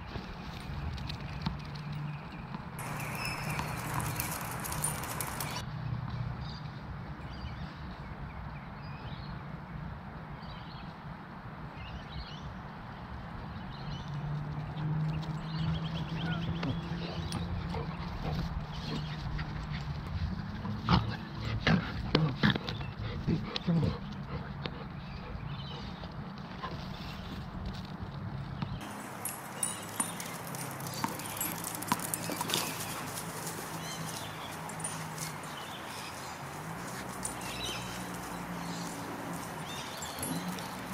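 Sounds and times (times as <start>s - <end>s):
dog claws tapping on pavement: 0.5s - 5.6s, 27.7s - 40.9s
birds chirping: 1.3s - 5.6s, 28.6s - 40.9s.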